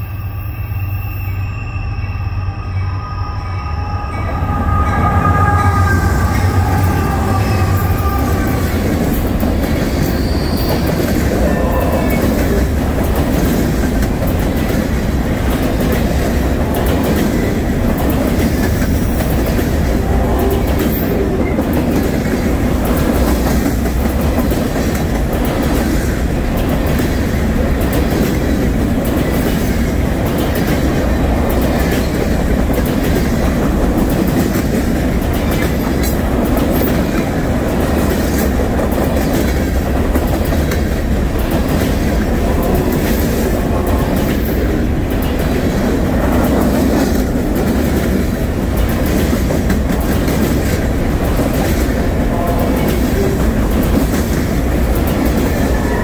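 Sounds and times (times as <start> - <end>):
high horn-like tones: 0.0 - 12.7
diesel locomotive engine rumble: 0.0 - 56.0
train wheels clickety-clack: 5.1 - 56.0.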